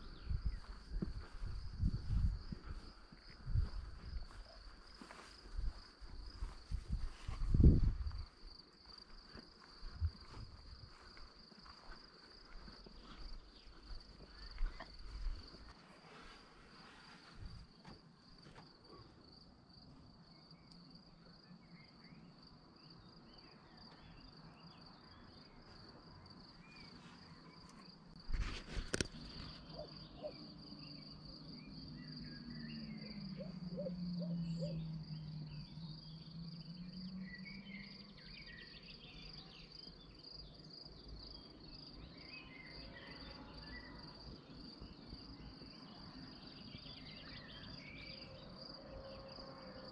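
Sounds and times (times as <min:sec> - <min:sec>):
crickets trilling: 0:00.0 - 0:49.9.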